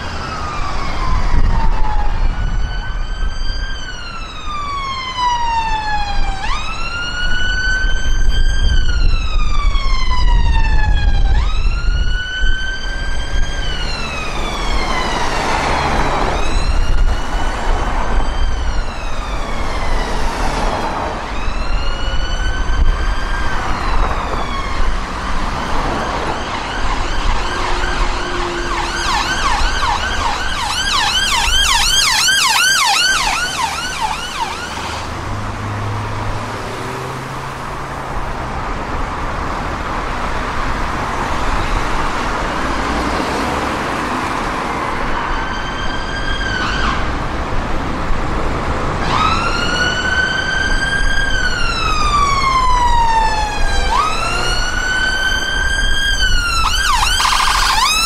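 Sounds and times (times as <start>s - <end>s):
ambulance siren wailing: 0.0s - 58.0s
low traffic rumble: 0.0s - 58.0s
siren fast yelp: 21.2s - 35.1s, 49.0s - 58.0s.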